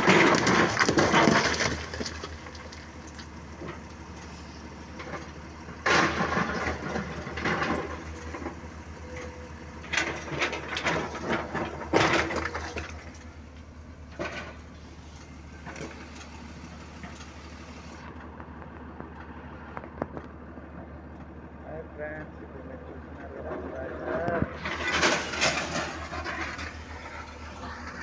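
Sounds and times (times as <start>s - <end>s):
rocks grinding and crashing: 0.0s - 3.8s, 9.9s - 13.4s, 23.6s - 28.0s
diesel engine hum: 0.0s - 28.0s.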